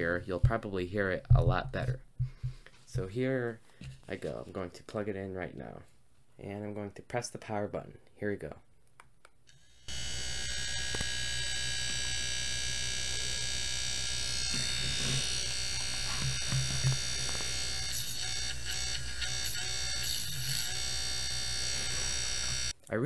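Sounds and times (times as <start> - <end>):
small electric motor buzzing: 9.5 - 22.8.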